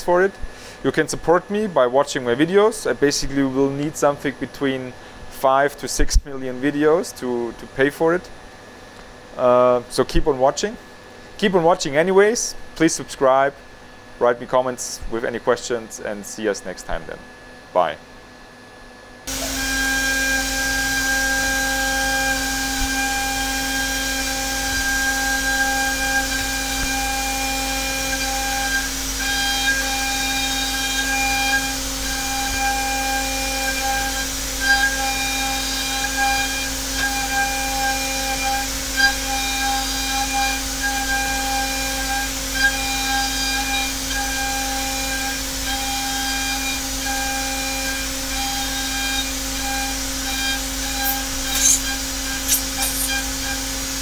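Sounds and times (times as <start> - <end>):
milling machine tone: 19.3 - 53.7.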